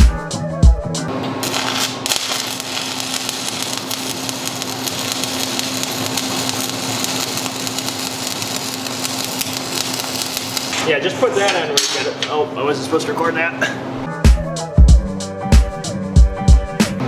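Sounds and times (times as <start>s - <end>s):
welding arc crackling and sizzling: 1.4s - 12.2s.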